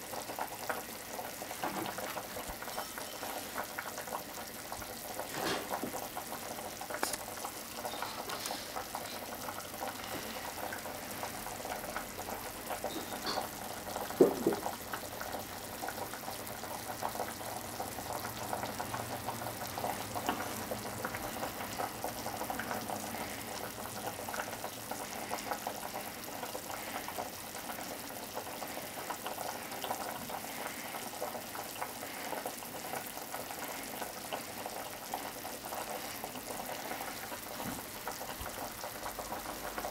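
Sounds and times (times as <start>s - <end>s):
pot bubbling on the boil: 0.0s - 39.9s
small crackles: 1.8s - 10.8s.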